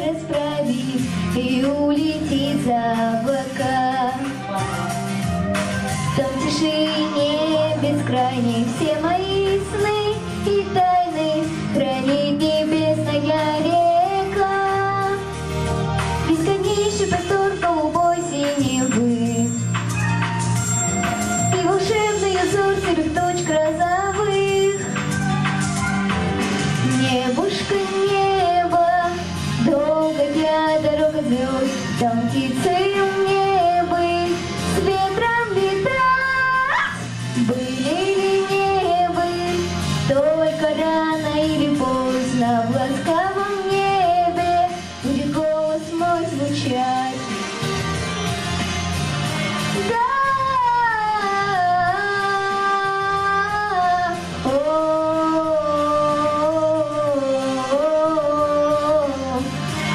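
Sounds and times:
girl singing into microphone: 0.0s - 15.4s, 16.2s - 20.4s, 21.0s - 25.7s, 26.8s - 47.5s, 49.8s - 59.6s
instrumental accompaniment: 0.0s - 59.9s
girl singing long notes: 6.1s - 15.2s.

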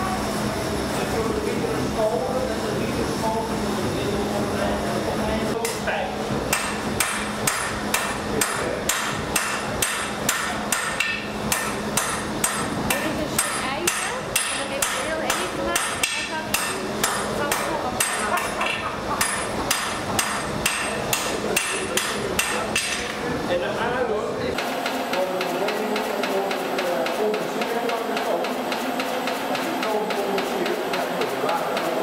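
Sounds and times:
hammer striking iron on anvil: 6.5s - 23.2s.

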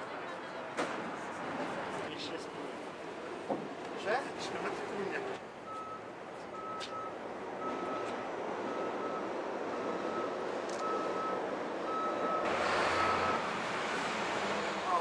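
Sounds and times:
rush of traffic: 0.0s - 15.0s
street noise: 0.0s - 15.0s
vehicle back-up alarm beeping: 5.6s - 13.5s.

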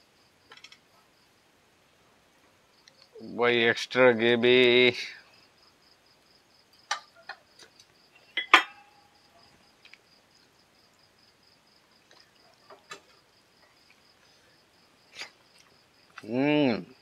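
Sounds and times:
cricket trill: 2.7s - 17.0s
dishes clicking and clinking: 8.3s - 9.0s.

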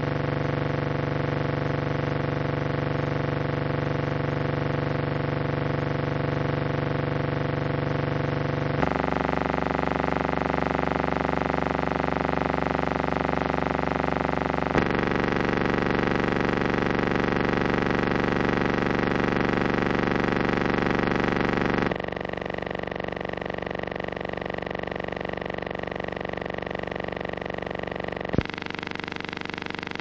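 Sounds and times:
steady buzzing hum: 8.0s - 30.0s
click: 14.7s - 15.0s, 28.2s - 28.7s.

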